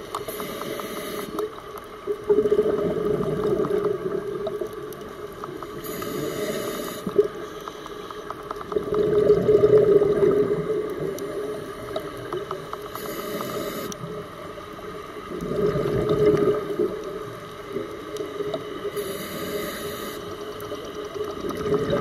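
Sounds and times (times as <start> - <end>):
exhaled bubbles gurgling underwater: 0.0 - 22.0
regulator inhale hiss: 0.1 - 1.5, 5.7 - 8.4, 12.8 - 14.1, 18.8 - 20.5.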